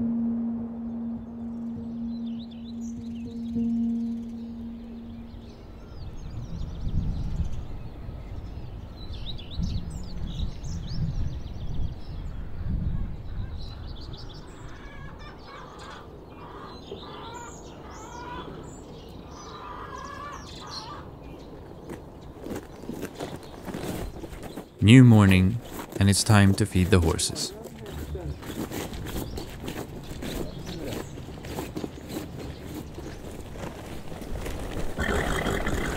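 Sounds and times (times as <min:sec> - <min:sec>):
low rumble: 0:00.0 - 0:05.8
birds chirping: 0:00.0 - 0:10.8, 0:13.6 - 0:35.9
harsh low bird calls: 0:34.9 - 0:35.9.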